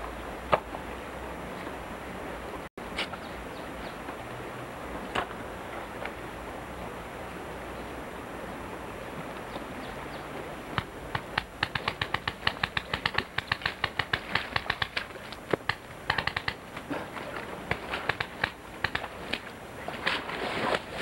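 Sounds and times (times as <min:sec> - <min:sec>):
steady background hiss: 0:00.0 - 0:21.0.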